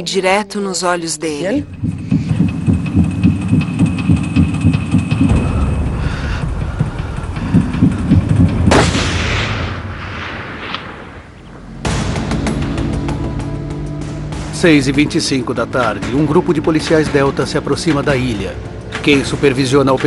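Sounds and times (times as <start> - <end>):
low pulsing heartbeat-like beat: 1.6 - 9.1
steady loud sound: 1.7 - 15.2
loud gunshot with echo: 8.7 - 12.1.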